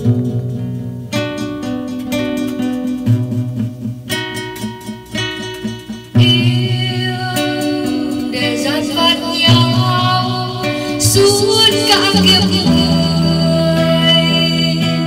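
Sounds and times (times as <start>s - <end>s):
acoustic guitar picking: 0.0s - 15.0s
woman singing: 6.1s - 15.0s.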